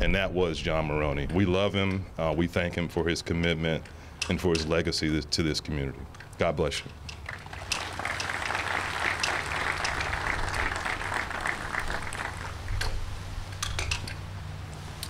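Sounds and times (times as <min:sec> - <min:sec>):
audience applauding: 0:07.2 - 0:12.8.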